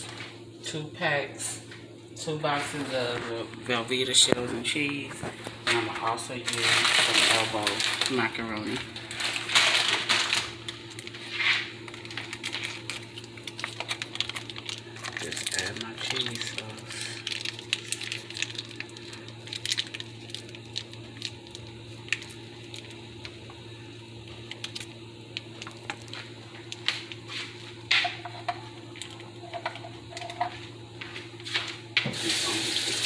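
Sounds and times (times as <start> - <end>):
steady low hum: 0.0 - 33.0
foil crinkling: 4.3 - 28.2.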